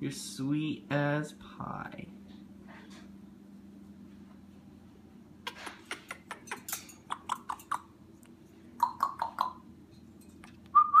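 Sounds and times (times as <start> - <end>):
parrot clicking: 5.7 - 7.9, 8.8 - 9.6.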